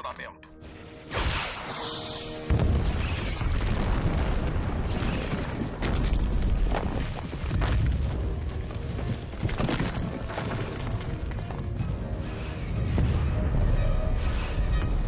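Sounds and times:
heavy explosion: 2.5 - 8.2
orchestral music: 11.6 - 15.0.

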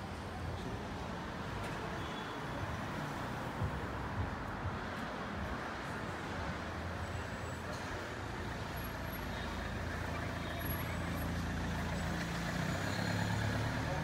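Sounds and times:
road noise: 0.0 - 14.0
vehicle engines humming: 2.6 - 14.0.

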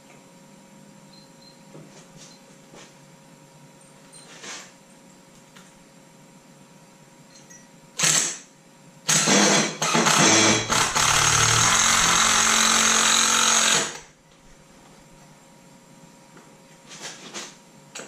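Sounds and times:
power drill drilling metal: 9.1 - 14.1.

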